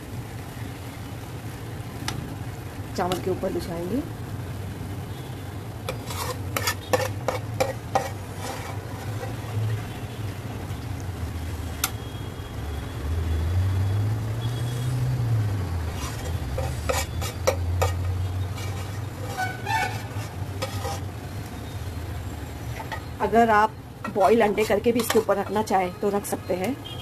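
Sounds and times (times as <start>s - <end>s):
spoon scraping in metal pot: 5.9s - 9.9s, 15.9s - 21.1s, 24.0s - 25.6s.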